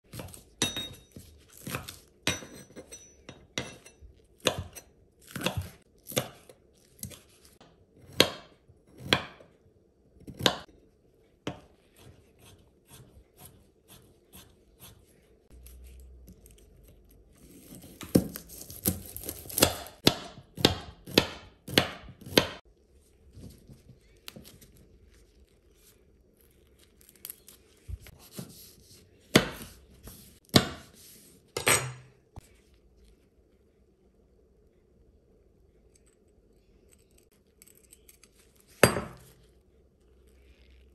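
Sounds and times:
knife chopping on wooden board: 4.4s - 7.2s, 8.0s - 9.5s, 10.2s - 10.7s, 17.6s - 22.6s, 29.3s - 31.9s.

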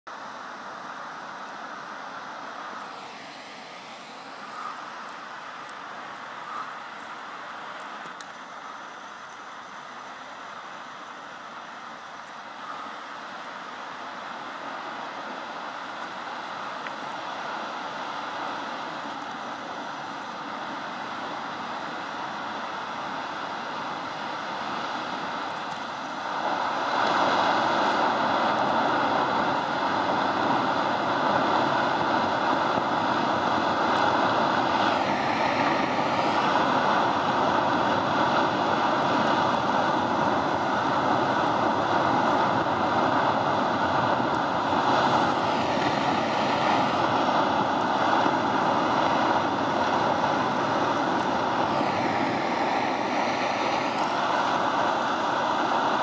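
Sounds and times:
faint steady whine: 0.1s - 56.0s
ice avalanche roaring: 15.7s - 56.0s.

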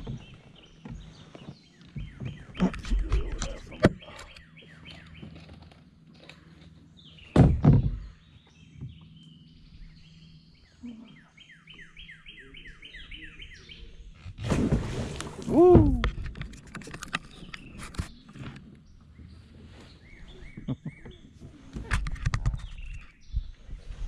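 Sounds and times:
loud thump: 7.4s - 8.0s.

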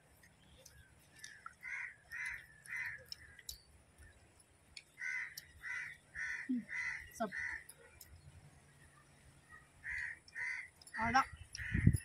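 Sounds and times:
crow cawing: 1.6s - 3.4s, 5.0s - 7.7s, 9.8s - 10.8s, 11.6s - 12.0s.

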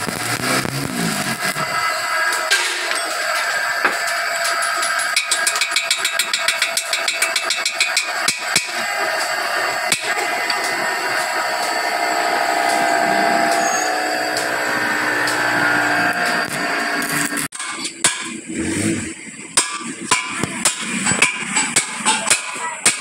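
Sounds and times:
workshop background: 0.0s - 23.0s
hand tool tapping on steel: 4.4s - 8.7s.

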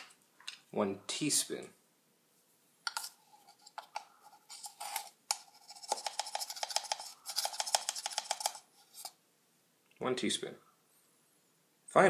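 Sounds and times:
spoon scraping metal tin: 2.9s - 9.2s.

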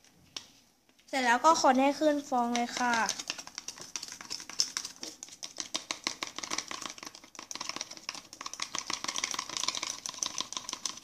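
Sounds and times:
spoon stirring in a plastic cup: 2.2s - 11.0s.

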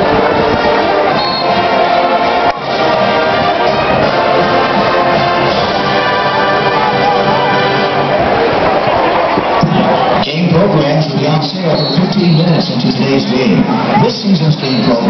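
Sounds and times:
brass band music: 0.0s - 15.0s.

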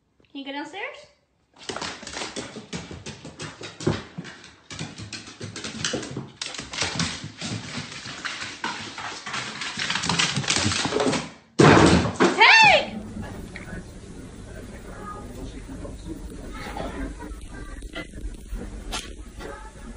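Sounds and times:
dog claws clattering on stairs: 1.6s - 12.0s.

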